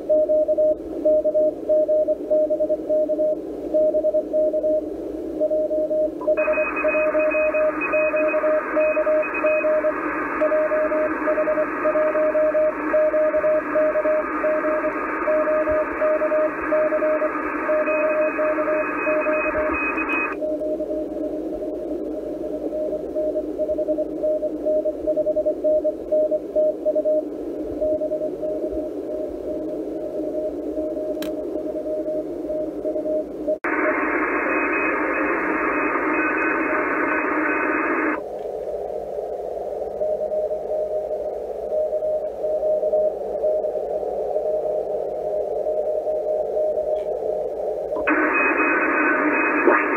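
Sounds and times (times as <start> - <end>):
morse code tone: 5.4 - 20.8, 33.7 - 38.2, 48.0 - 49.9
faint higher-pitched morse signal: 5.4 - 38.2, 39.9 - 47.1, 47.9 - 49.9
radio band hiss: 6.2 - 23.6, 33.7 - 41.7, 43.2 - 49.9.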